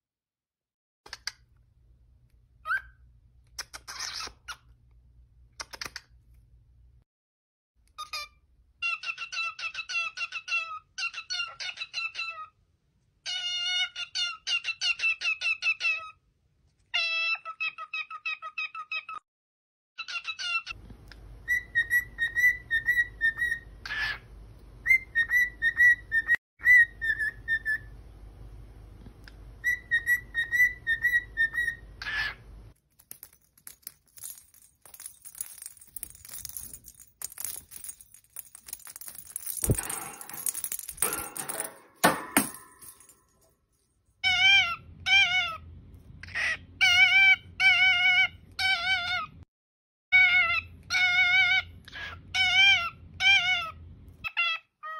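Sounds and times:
cockatiel whistling a tune: 21.4s - 23.7s, 24.8s - 27.9s, 29.6s - 31.8s.

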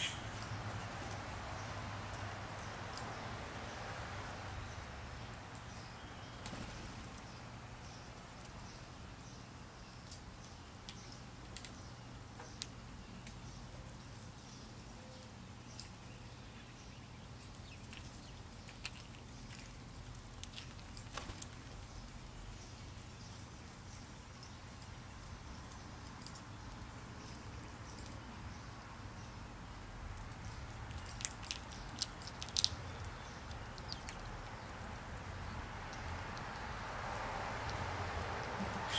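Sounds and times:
chipmunk chewing birdseed: 17.2s - 38.9s.

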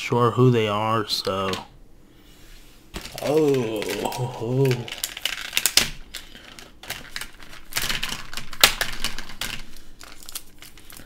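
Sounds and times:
plastic packaging crackling: 2.9s - 11.0s.

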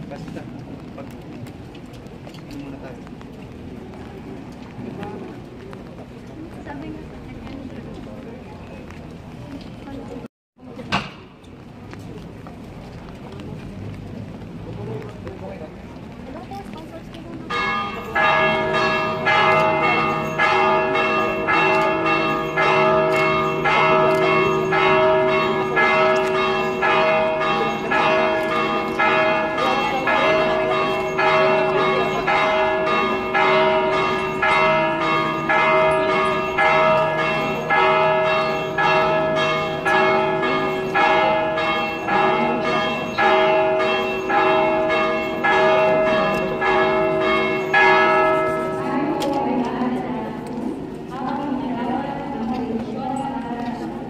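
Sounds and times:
church bells pealing: 17.4s - 53.9s.

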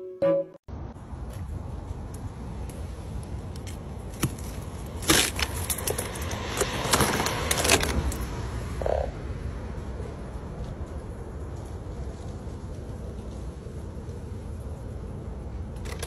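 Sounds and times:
ice cracking and crackling: 4.2s - 8.1s.

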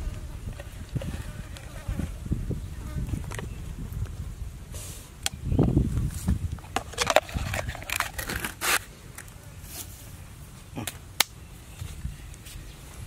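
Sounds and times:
scraping and rustling: 6.1s - 8.9s.

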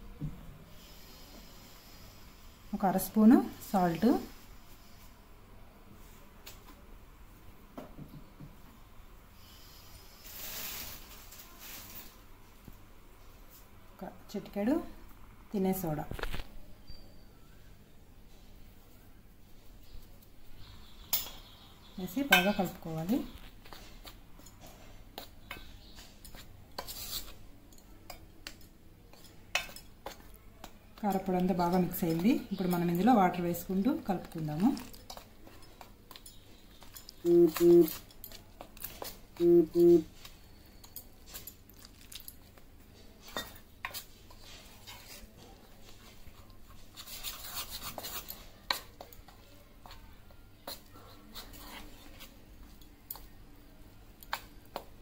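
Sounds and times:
spoon scraping flour in steel bowl: 25.9s - 27.4s, 43.2s - 50.0s, 50.6s - 52.4s.

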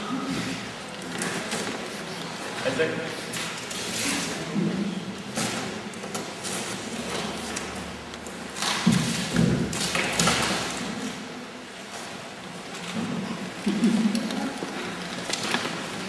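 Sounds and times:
paper ripping and crackling: 14.2s - 16.0s.

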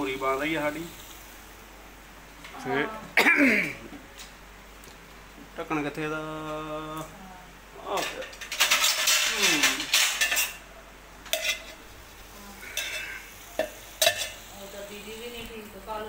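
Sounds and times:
dishes clattering and scraping: 7.9s - 11.8s, 12.6s - 14.4s.

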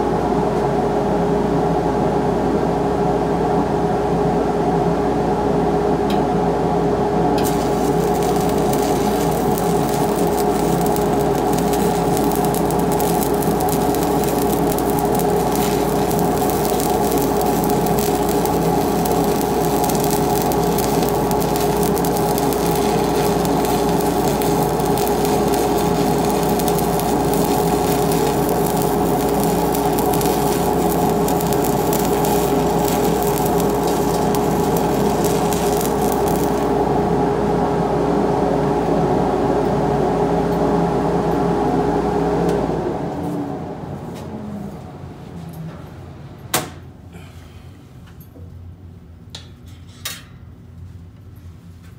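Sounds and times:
steady hum: 5.7s - 47.6s
welding arc crackle and hiss: 7.4s - 37.1s.

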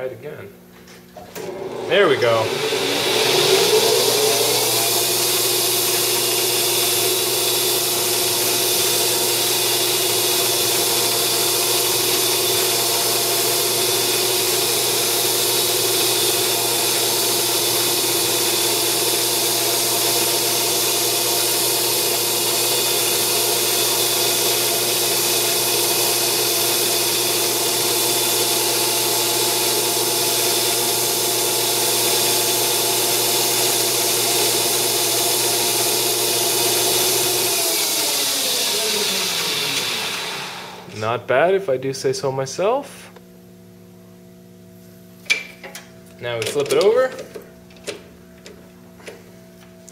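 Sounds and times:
lathe running: 1.3s - 40.9s.

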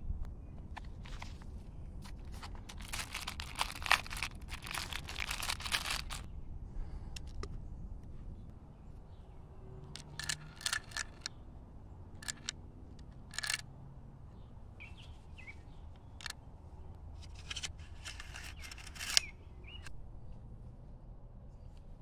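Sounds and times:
cartridges clicking and rattling: 2.7s - 6.3s, 9.9s - 11.4s, 12.2s - 13.6s, 17.2s - 19.9s.

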